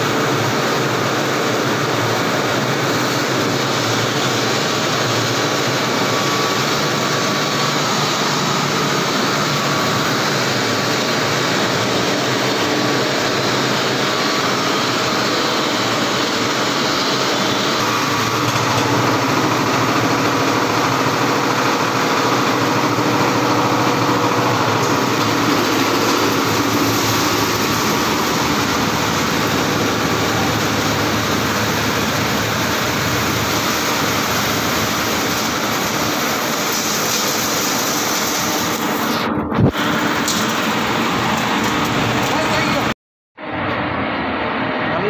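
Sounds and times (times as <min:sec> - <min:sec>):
plastic agglomerator churning: 0:16.5 - 0:42.9.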